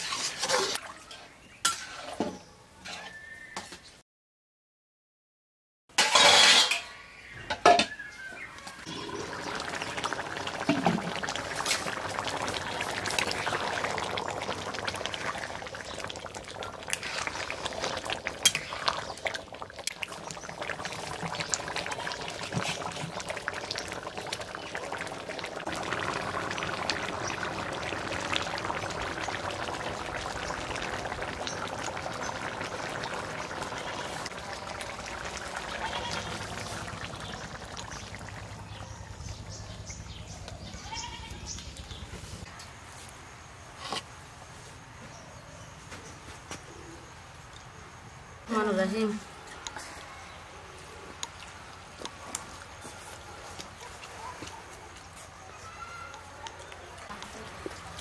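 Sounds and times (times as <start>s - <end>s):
lid and spatula clattering on pan: 5.9s - 8.0s
curry simmering and bubbling: 8.0s - 42.5s, 47.0s - 58.0s.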